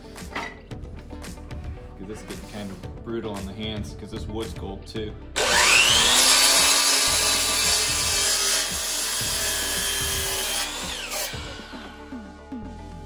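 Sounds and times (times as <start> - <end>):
saw cutting wooden board: 5.4 - 12.6
miter saw motor whine: 5.4 - 13.0.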